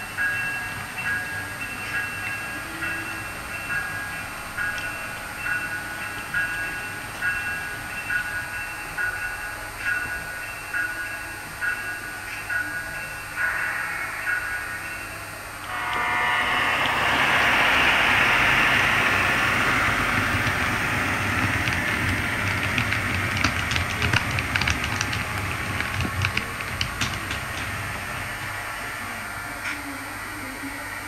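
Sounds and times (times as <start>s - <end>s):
model train electric hum: 0.0s - 31.0s
model train motors whirring: 15.6s - 29.2s
wheels clicking over track: 16.6s - 29.0s.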